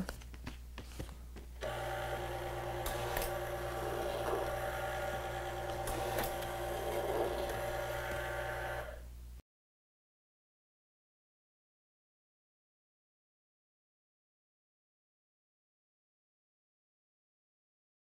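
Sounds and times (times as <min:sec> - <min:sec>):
label applicator motor hum: 0:01.6 - 0:09.1.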